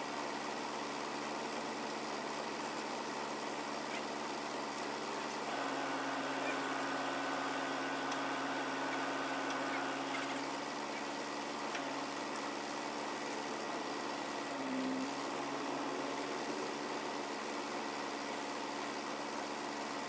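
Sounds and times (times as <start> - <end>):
truck engine running: 4.4 - 19.3
thin crane whine: 5.4 - 11.0.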